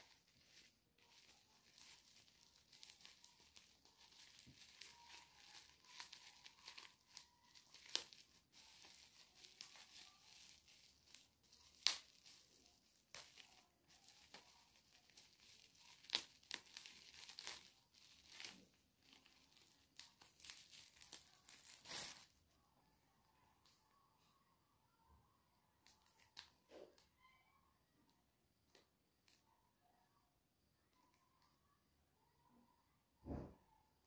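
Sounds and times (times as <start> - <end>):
packaging tearing and crinkling: 0.0 - 22.4.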